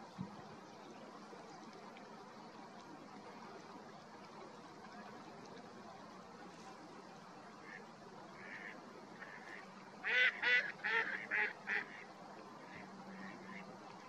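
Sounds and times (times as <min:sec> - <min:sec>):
shelducks calling: 0:08.4 - 0:12.0.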